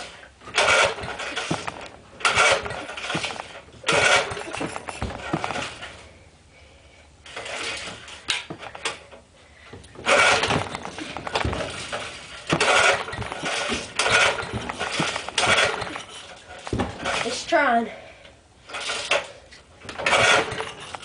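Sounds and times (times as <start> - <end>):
small engine cranking: 0.5 - 5.9, 9.9 - 17.4, 18.7 - 21.0.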